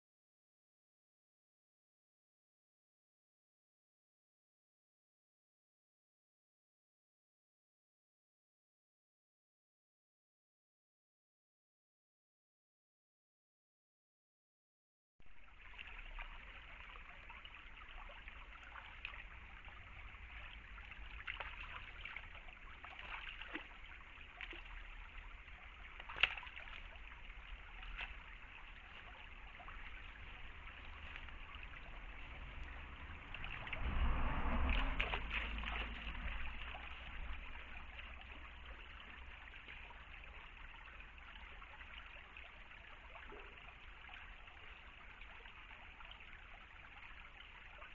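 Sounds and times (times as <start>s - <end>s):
stream trickling: 15.2s - 47.9s.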